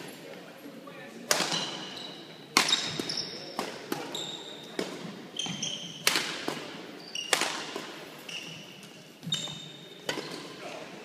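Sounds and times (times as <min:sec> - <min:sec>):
rackets striking shuttlecock: 0:01.3 - 0:01.9, 0:04.8 - 0:08.0
shoes squeaking on hardwood court: 0:01.5 - 0:10.6.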